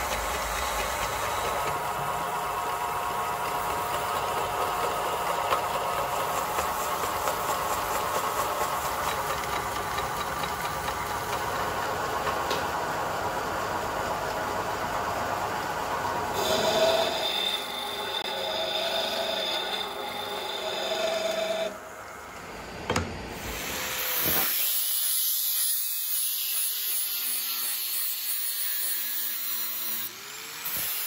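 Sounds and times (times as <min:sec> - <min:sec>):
workshop machine humming: 0:00.0 - 0:25.0.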